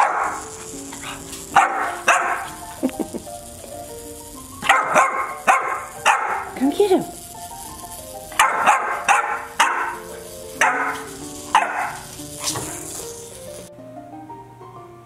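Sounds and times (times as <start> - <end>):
puppy barking: 0.0 - 2.8, 4.6 - 6.6, 8.3 - 12.9
light background music: 0.0 - 15.0.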